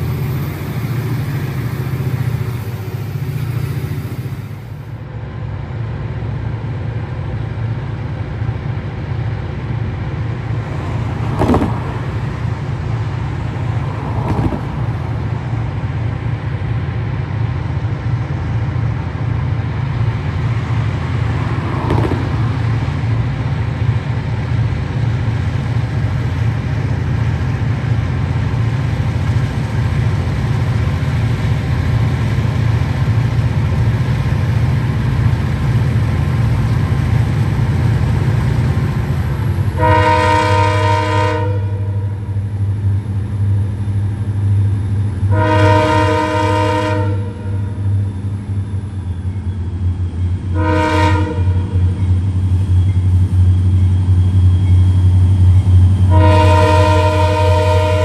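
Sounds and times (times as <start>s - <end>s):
diesel locomotive engine rumble: 0.0s - 58.0s
train air horn blasts: 39.7s - 42.3s, 45.2s - 48.0s, 50.5s - 51.8s, 56.0s - 58.0s.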